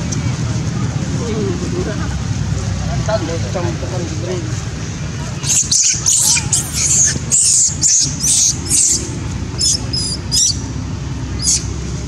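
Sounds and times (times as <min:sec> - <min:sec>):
infant monkey squealing: 0:05.4 - 0:10.7, 0:11.3 - 0:11.7.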